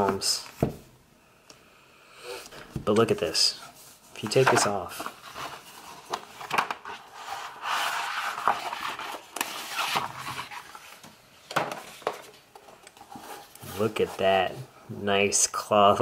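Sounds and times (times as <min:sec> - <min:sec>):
paper dust jacket rustling: 0:03.7 - 0:11.0.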